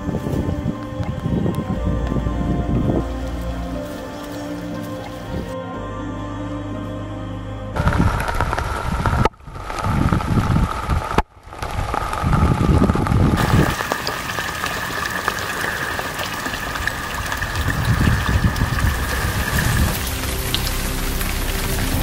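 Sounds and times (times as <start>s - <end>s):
low rumbles: 0.0s - 22.0s
rain falling on pond: 7.8s - 22.0s.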